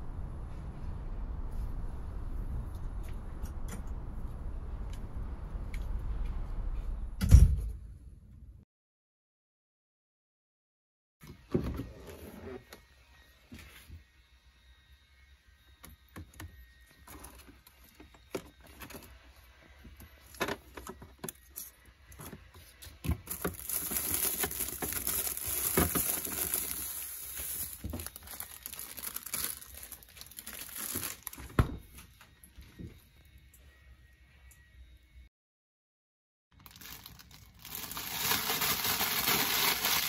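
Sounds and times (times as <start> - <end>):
plastic bags crinkling: 23.2 - 31.5, 36.6 - 40.0.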